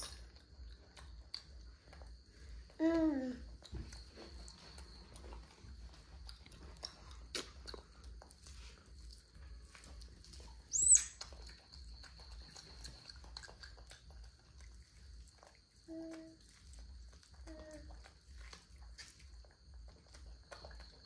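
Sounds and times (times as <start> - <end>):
monkey chewing corn: 0.0 - 21.0.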